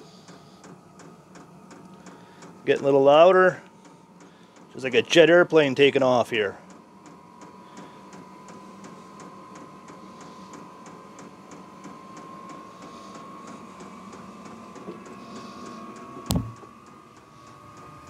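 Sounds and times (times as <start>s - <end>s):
heater blower whine: 0.0s - 18.0s
sharp knock: 16.3s - 16.6s.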